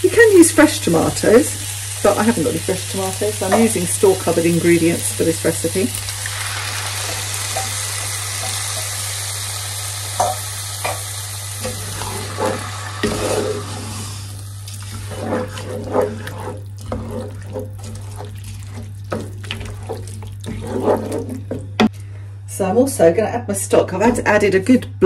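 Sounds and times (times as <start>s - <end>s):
vegetables sizzling in a pan: 0.0s - 21.8s
wooden spoon scraping a pan: 0.9s - 6.0s, 7.0s - 9.0s, 11.6s - 21.9s.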